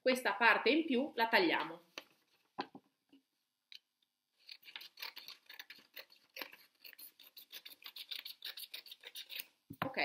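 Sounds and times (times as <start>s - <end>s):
scissors snipping paper: 4.4s - 9.5s.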